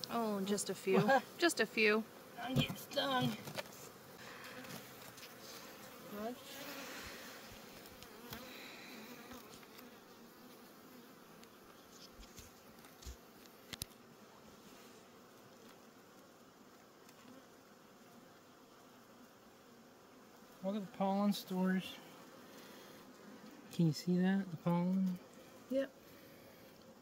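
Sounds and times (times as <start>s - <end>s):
bees buzzing: 0.0s - 27.0s
light knocks of hive frames: 2.4s - 3.8s.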